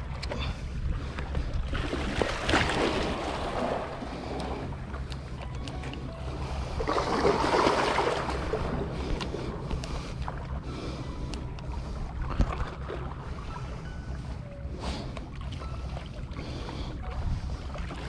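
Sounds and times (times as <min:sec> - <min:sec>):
wind rumble on microphone: 0:00.0 - 0:18.0
rushing splashing water: 0:06.8 - 0:08.7.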